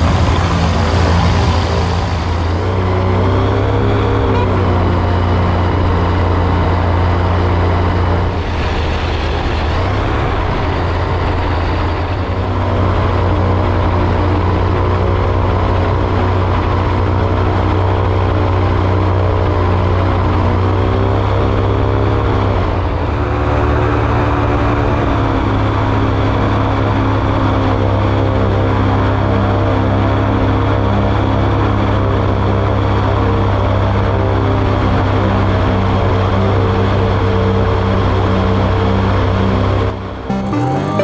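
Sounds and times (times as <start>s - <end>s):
light aircraft engine running: 0.0s - 41.0s.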